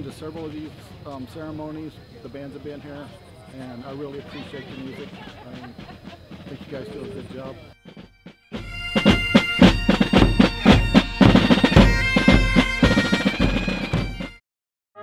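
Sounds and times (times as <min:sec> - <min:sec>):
bass drum beating: 0:05.0 - 0:14.4
bagpipes playing: 0:06.7 - 0:14.4.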